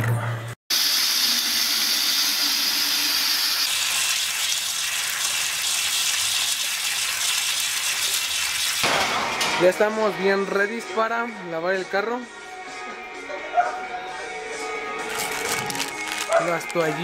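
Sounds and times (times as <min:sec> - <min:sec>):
tap water pouring into bucket: 0:00.7 - 0:08.8.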